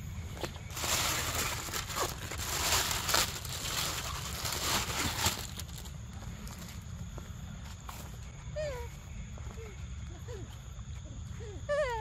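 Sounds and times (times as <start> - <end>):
close rustling and crinkling: 0.4 - 6.8
sharp crackles: 0.7 - 6.0.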